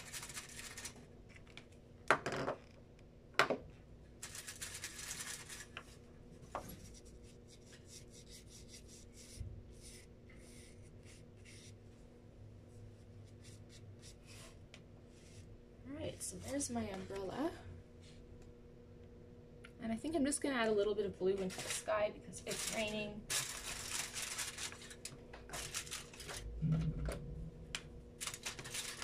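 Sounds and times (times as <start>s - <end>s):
paintbrush strokes on paper: 6.8s - 11.8s.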